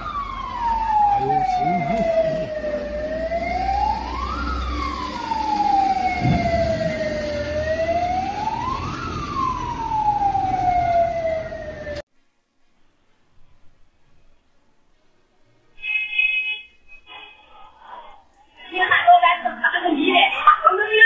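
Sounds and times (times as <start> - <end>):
emergency siren wailing: 0.0 - 12.0
fainter second siren: 0.0 - 12.0, 15.8 - 19.0
low thud: 6.1 - 7.4.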